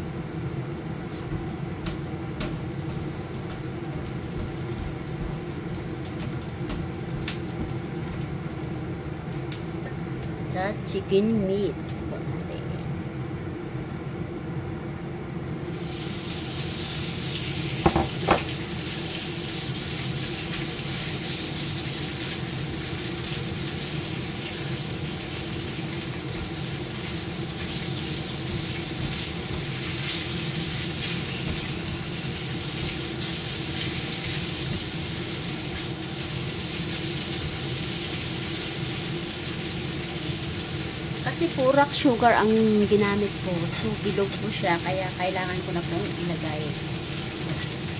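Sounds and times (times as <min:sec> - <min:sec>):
steady hum: 0:00.0 - 0:19.4
chicken sizzling in a pan: 0:00.0 - 0:47.9.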